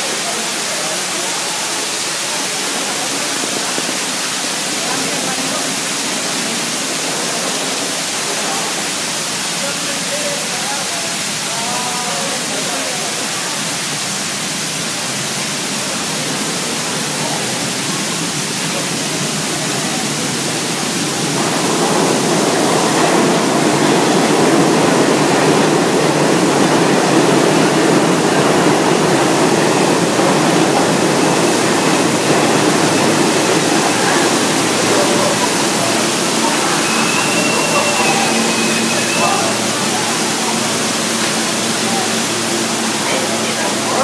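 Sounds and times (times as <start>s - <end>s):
train pulling into station: 0.0s - 44.0s
water gushing from pipe: 0.0s - 44.0s
faint high squeal: 36.4s - 39.7s.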